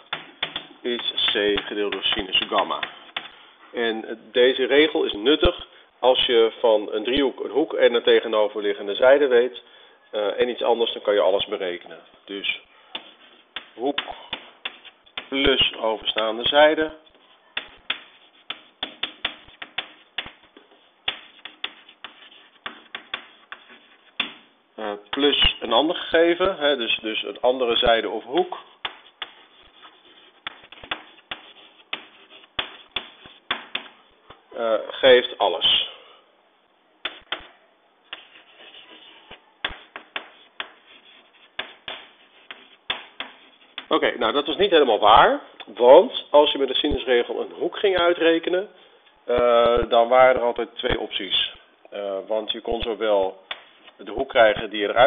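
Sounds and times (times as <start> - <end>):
chalk tapping and scratching: 0.0 - 3.4, 12.9 - 26.6, 27.8 - 34.0, 37.0 - 44.0, 53.5 - 54.0.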